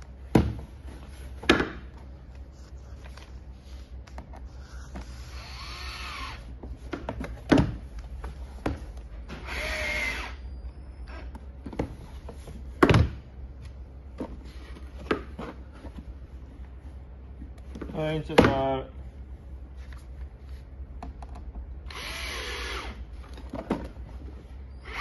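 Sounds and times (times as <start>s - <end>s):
cordless drill whirring: 5.3s - 6.4s, 9.4s - 10.4s, 21.9s - 23.0s.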